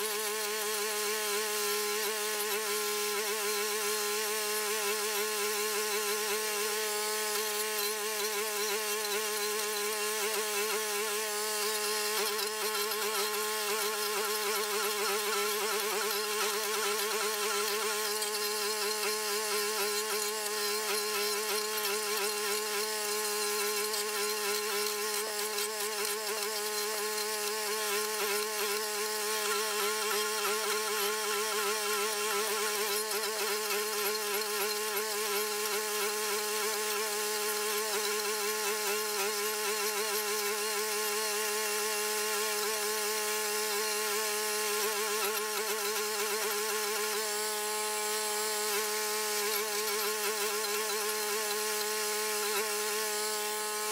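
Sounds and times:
stump grinder engine buzzing: 0:00.0 - 0:53.9
cutting wheel grinding stump: 0:07.1 - 0:35.8.

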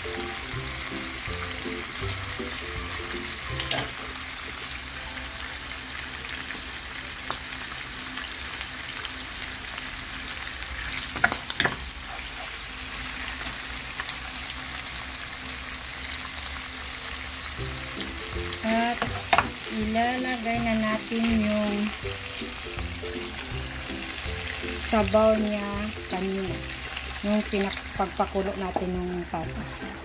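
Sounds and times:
food sizzling in oil: 0:00.0 - 0:30.0.

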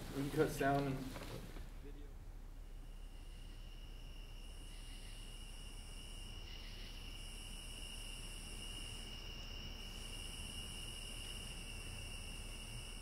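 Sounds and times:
faint low hum: 0:00.0 - 0:13.0
insect trill: 0:02.6 - 0:13.0
higher insect layer: 0:02.8 - 0:13.0.

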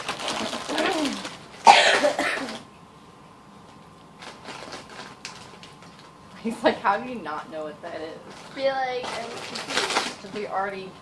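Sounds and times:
girl coughing: 0:01.6 - 0:02.6.

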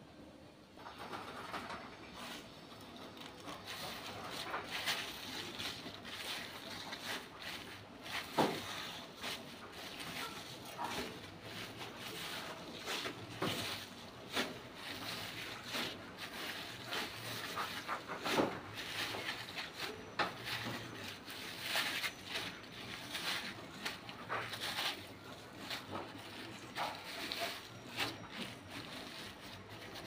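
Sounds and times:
leaves splashing in water: 0:03.4 - 0:30.0.

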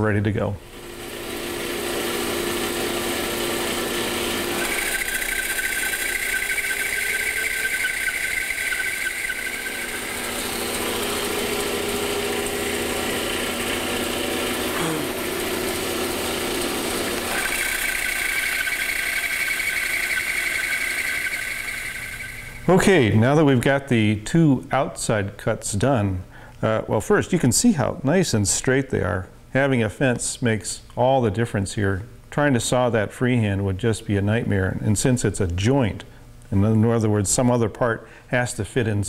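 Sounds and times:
bandsaw cutting wood: 0:00.8 - 0:22.8.

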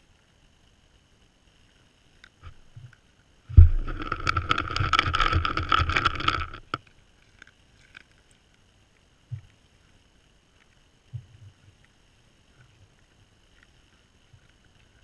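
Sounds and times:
scraping and crackling on camera: 0:02.2 - 0:08.3.

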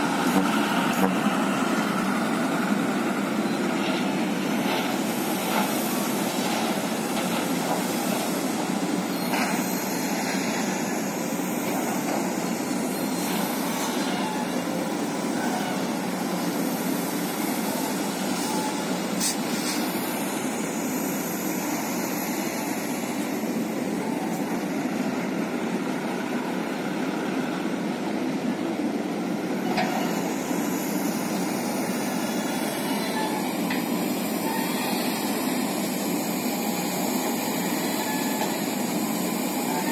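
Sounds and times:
heavy machinery diesel engines: 0:00.0 - 0:39.9.

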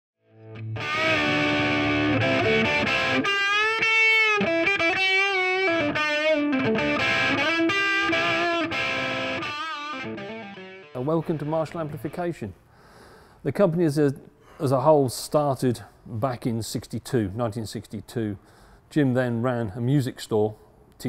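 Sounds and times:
distorted electric guitar: 0:00.4 - 0:12.2.

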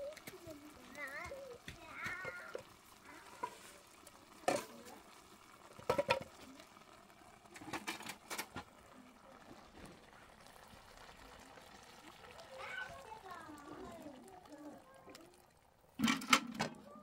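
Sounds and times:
metal cookware clinking: 0:04.4 - 0:04.8, 0:05.8 - 0:06.3, 0:16.0 - 0:16.8.

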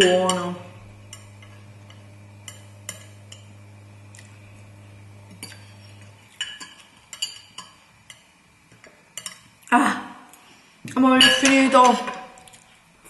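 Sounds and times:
steady low hum: 0:00.0 - 0:06.4
cutlery clinking against glass bowl: 0:01.1 - 0:03.6, 0:05.3 - 0:09.5.

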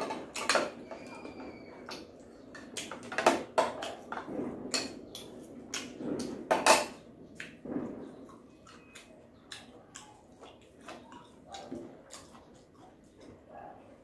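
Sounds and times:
dishes and spoons clinking: 0:00.0 - 0:07.0
chewing and mouth sounds: 0:07.4 - 0:14.0.

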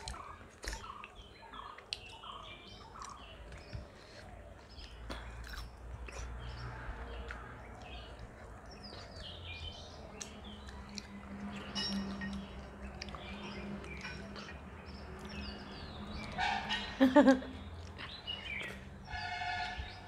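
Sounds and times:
chewing: 0:00.0 - 0:16.8, 0:17.6 - 0:19.0
small birds chirping: 0:00.0 - 0:20.0.

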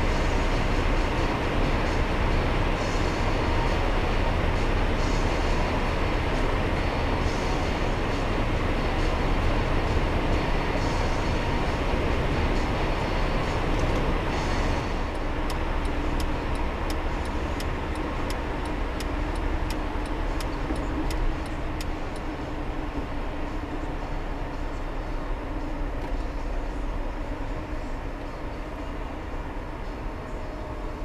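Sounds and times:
car road and engine noise: 0:00.0 - 0:31.0
light rapid ticks: 0:15.1 - 0:22.3.

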